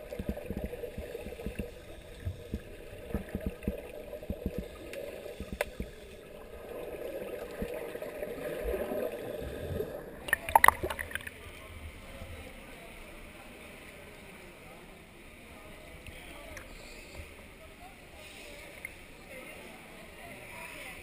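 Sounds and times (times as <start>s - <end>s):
underwater scuba bubbles: 0.0s - 11.6s.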